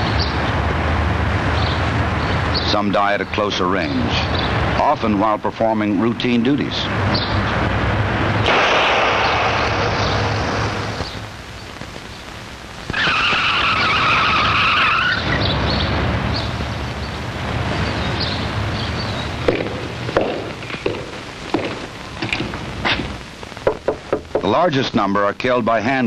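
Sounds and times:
tyre squeal: 12.9 - 15.4.

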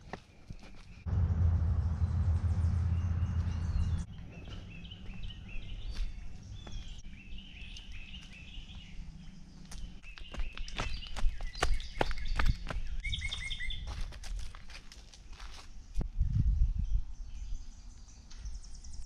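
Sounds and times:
songbird chirping: 0.0 - 14.0
low rumble on microphone: 1.1 - 7.0.

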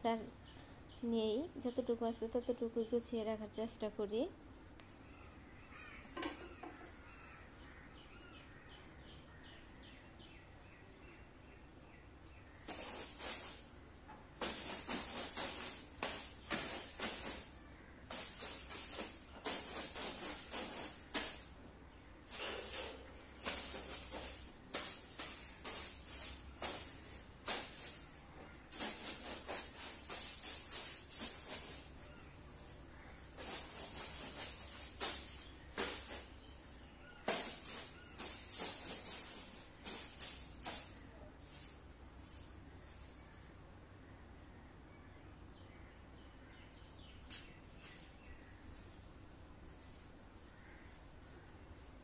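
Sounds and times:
brushing and dusting strokes: 12.6 - 13.8, 14.4 - 21.6, 22.2 - 43.6.

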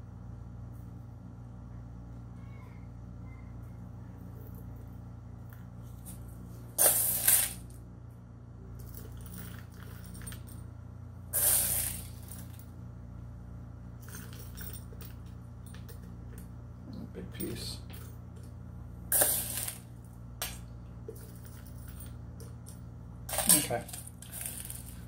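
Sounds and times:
metal pellets clinking and rattling: 6.8 - 7.7, 8.8 - 10.6, 11.4 - 12.7, 14.0 - 16.1, 19.1 - 25.0.

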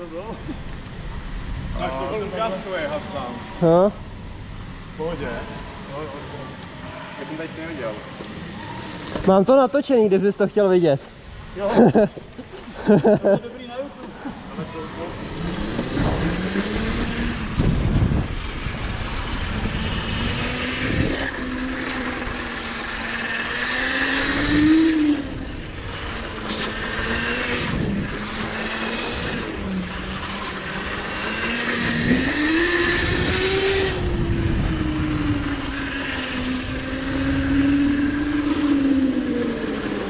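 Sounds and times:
motorbike engine revving: 11.1 - 40.0.

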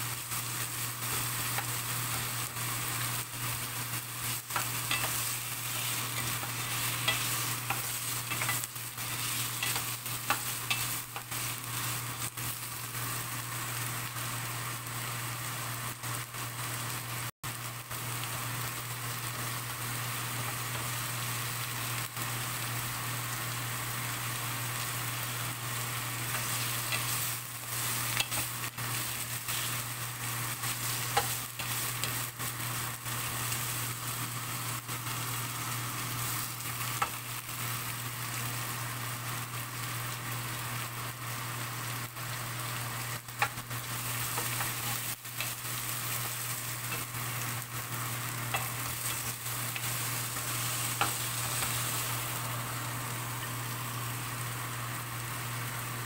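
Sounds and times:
carrots sizzling in oil: 0.0 - 56.0
spatula scraping frying pan: 4.2 - 11.9.

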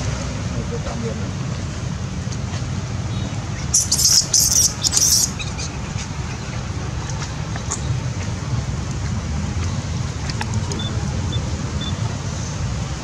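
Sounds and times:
wind rumble on microphone: 0.0 - 13.0
baby monkey screeching: 3.5 - 6.7.

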